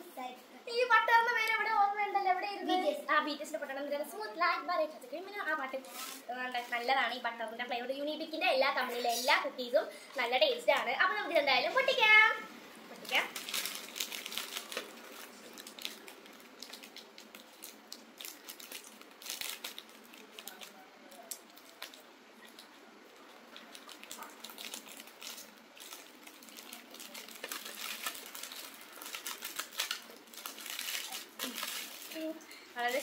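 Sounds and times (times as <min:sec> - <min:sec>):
plastic wrapper crinkling: 0:12.9 - 0:33.0.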